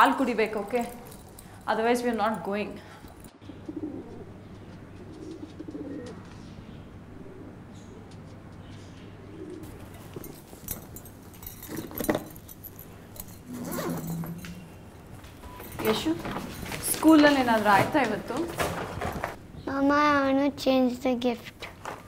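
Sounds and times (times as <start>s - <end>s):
pigeons cooing: 3.4s - 10.7s
knocks and rustles: 9.6s - 19.4s
low hum: 9.7s - 16.4s.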